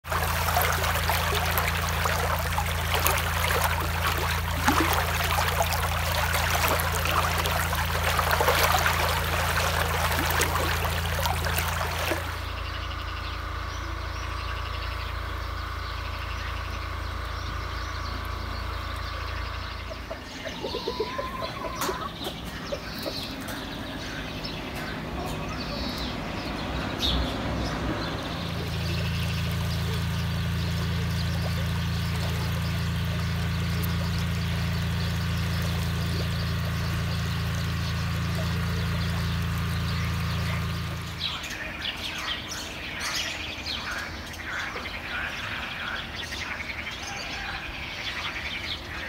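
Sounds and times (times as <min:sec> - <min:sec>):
birds chirping: 0:00.0 - 0:49.0
steady low hum: 0:00.0 - 0:49.0
chickens clucking: 0:18.9 - 0:34.3.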